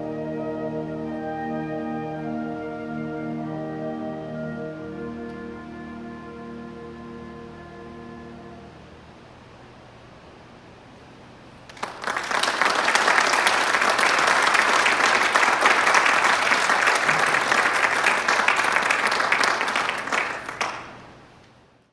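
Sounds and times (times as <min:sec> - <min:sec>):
audience applauding: 0:11.7 - 0:21.2.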